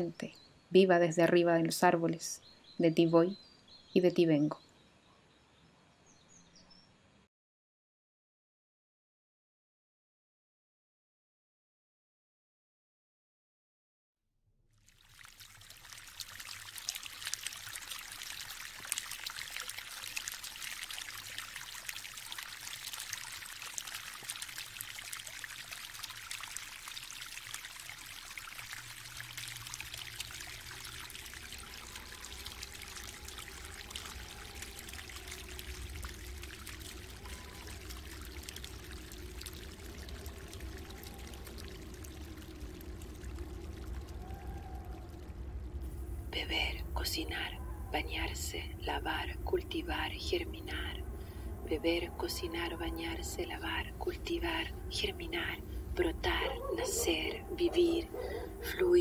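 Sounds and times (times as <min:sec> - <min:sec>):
stream babbling over stones: 0:14.8 - 0:45.1, 0:46.4 - 0:51.0, 0:51.7 - 0:58.0, 0:58.6 - 0:59.0
low rumble: 0:35.3 - 0:48.0.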